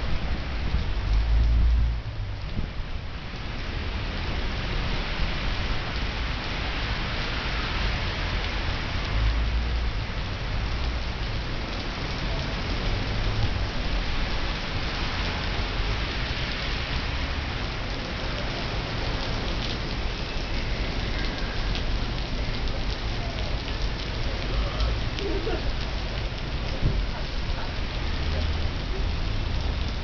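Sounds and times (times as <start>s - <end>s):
heavy rain pounding pavement: 0.0s - 30.0s.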